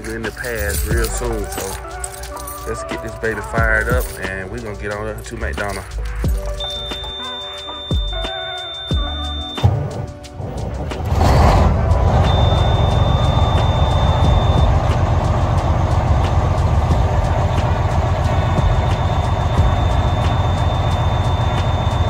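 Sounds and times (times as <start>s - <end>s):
diesel truck engine idling: 5.9s - 22.0s
high-pitched warning tone: 6.4s - 9.7s, 12.2s - 15.1s, 17.6s - 22.0s.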